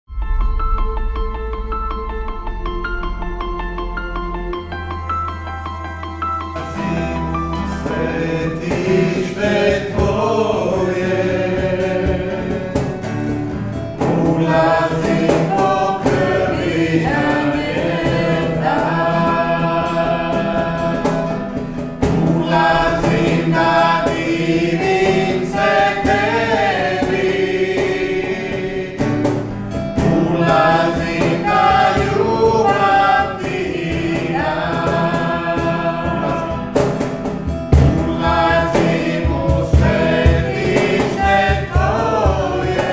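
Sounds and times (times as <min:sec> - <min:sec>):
strummed acoustic guitar: 0:06.5 - 0:42.9
man and woman singing: 0:06.6 - 0:13.2, 0:14.0 - 0:29.2, 0:30.0 - 0:37.0, 0:37.8 - 0:42.9.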